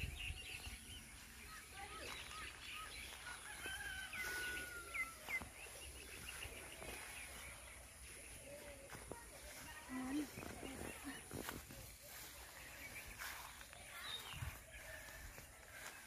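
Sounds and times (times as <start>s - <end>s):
small birds chirping: 0.0s - 16.0s
rooster crowing: 3.2s - 5.3s.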